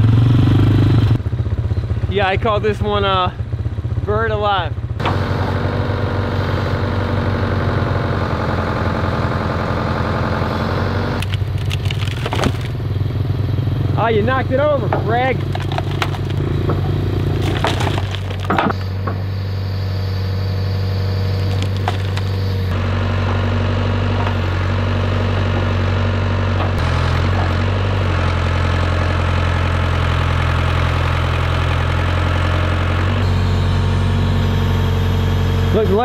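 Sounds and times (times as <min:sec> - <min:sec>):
backhoe engine running: 0:00.0 - 0:36.0
falling soil and stones clatter: 0:11.2 - 0:12.8, 0:15.1 - 0:18.9, 0:21.2 - 0:22.7.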